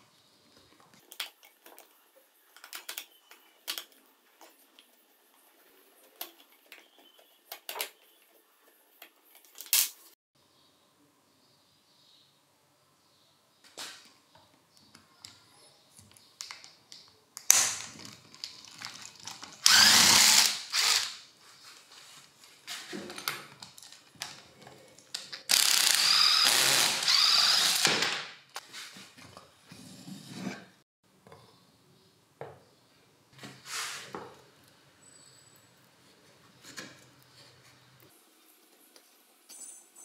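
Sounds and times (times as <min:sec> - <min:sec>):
electric screwdriver running: 0:19.6 - 0:21.2, 0:25.5 - 0:28.1.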